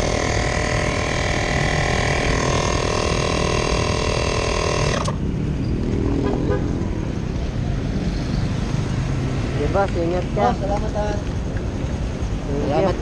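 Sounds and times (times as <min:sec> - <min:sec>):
air compressor running: 0:00.0 - 0:05.2.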